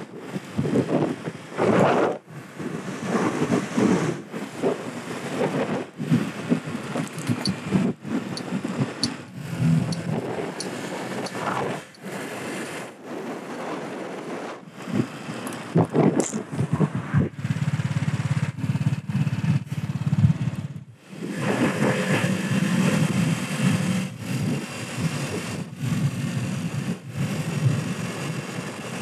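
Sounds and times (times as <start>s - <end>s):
wind noise on microphone: 0.0s - 29.0s
scooter engine buzzing: 6.0s - 12.1s, 16.6s - 29.0s.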